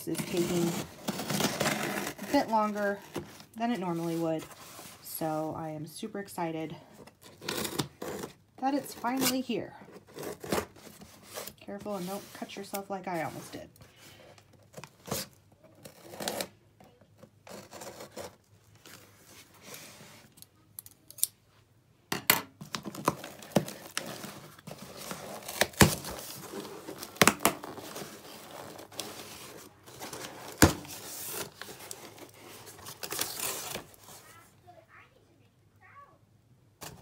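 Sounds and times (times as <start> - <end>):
packing tape tearing: 14.7 - 16.6, 22.7 - 34.4.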